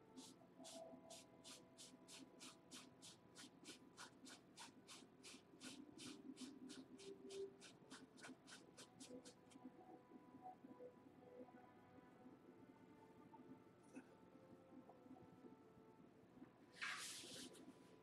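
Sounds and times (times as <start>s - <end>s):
paintbrush scratching on canvas: 0.0s - 9.6s, 16.8s - 17.6s.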